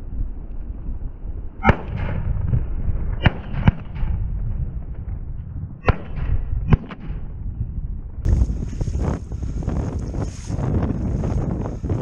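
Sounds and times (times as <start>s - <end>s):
wind noise on microphone: 0.0s - 12.0s
shotgun shots with echo: 1.6s - 2.5s, 3.1s - 4.3s, 5.8s - 7.4s.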